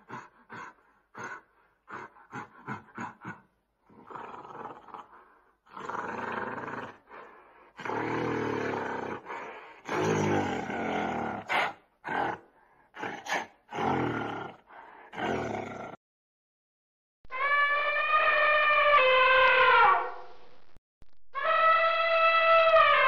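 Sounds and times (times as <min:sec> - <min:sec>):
gorilla roars and grunts: 0:00.0 - 0:07.2, 0:07.8 - 0:16.0.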